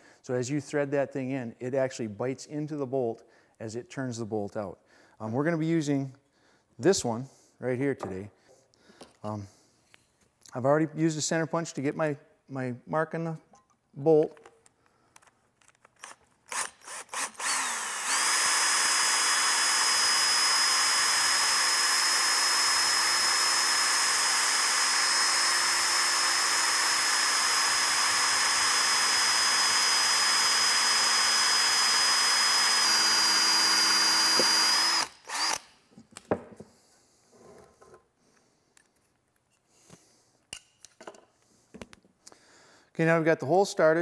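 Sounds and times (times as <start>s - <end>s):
cordless drill boring into steel: 16.0s - 35.7s.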